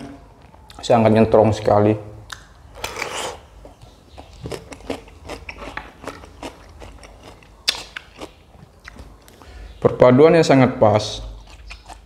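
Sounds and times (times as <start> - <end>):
close chewing with mouth clicks: 2.3 - 9.4, 11.3 - 12.0.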